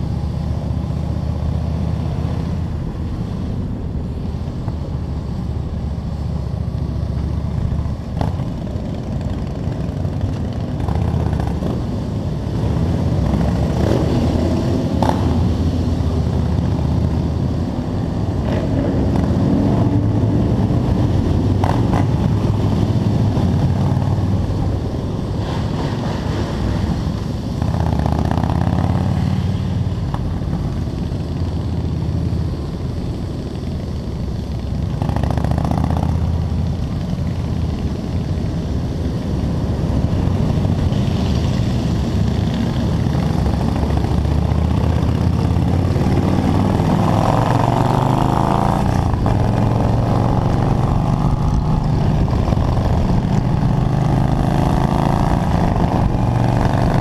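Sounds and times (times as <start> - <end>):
wind rush on microphone: 0.0 - 57.0
motorcycle engine running: 27.6 - 57.0.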